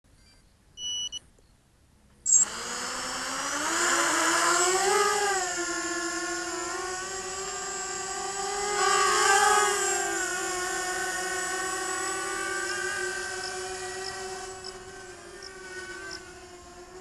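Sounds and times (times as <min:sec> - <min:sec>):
short electronic beeps: 0:00.8 - 0:01.2, 0:02.3 - 0:02.5
quadcopter motors whining: 0:02.3 - 0:17.0.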